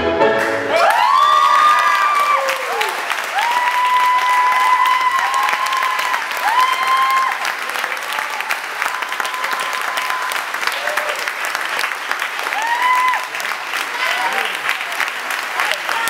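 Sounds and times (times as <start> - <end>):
audience clapping: 0.4 - 16.0
high held cheers: 0.6 - 16.0.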